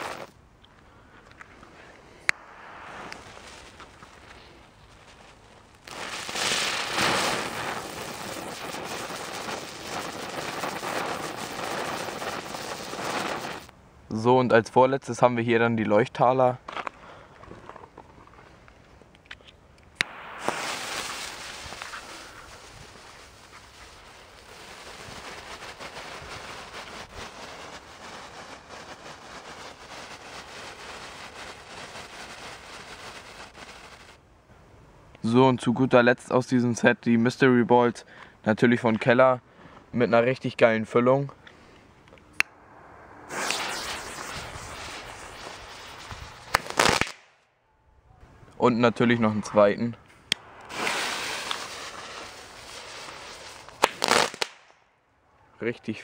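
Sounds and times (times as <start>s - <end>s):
firework spinner hissing and crackling: 0.0s - 0.4s, 1.3s - 13.8s, 20.0s - 34.2s, 41.4s - 47.4s, 49.5s - 54.8s.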